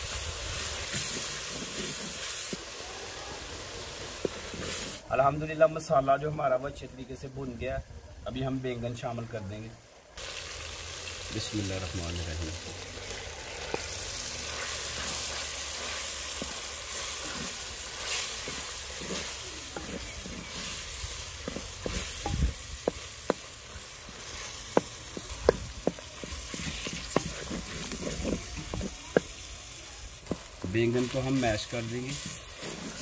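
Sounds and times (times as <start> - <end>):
eggplant sizzling in pot: 0.0 - 6.6, 8.4 - 33.0
wooden spoon knocking clay pot: 21.4 - 23.6, 24.7 - 29.4.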